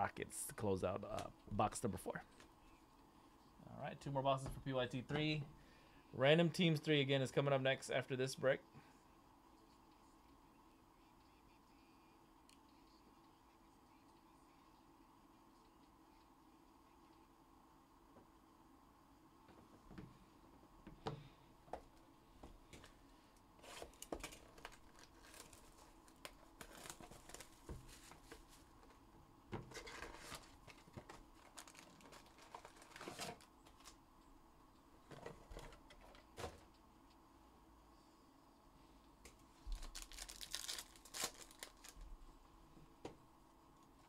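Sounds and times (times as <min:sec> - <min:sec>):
plastic wrapping crinkling and tearing: 0:23.6 - 0:28.4, 0:29.7 - 0:34.0, 0:39.7 - 0:42.1.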